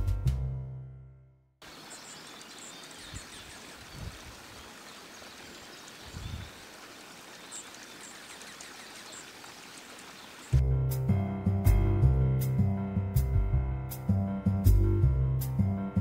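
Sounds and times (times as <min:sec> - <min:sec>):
faint outdoor hiss: 0:01.6 - 0:10.6
songbird chip notes: 0:01.6 - 0:10.6.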